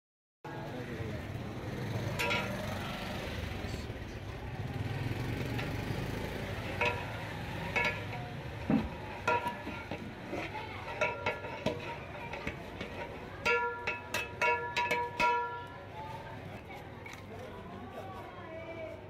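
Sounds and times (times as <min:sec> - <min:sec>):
metal ladle scraping pot: 0:02.1 - 0:03.1, 0:05.5 - 0:16.2.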